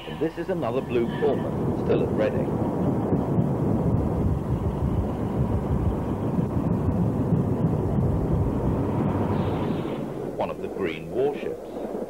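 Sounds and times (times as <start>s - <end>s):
diesel train rumbling: 0.0s - 11.8s.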